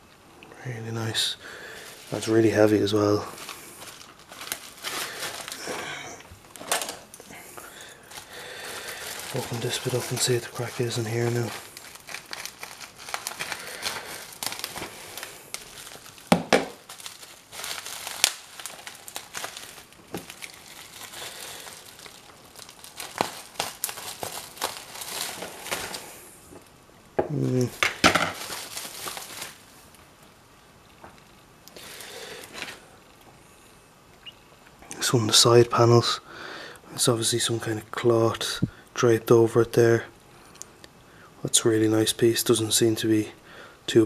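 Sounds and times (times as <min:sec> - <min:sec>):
bubble wrap crinkling: 0:01.0 - 0:33.3.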